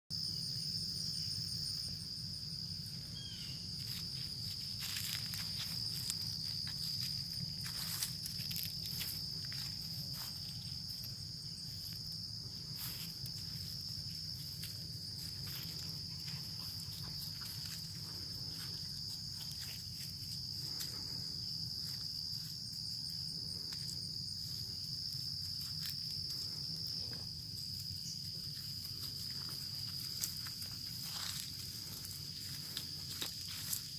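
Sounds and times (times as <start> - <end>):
insects chirring: 0.1 - 33.9.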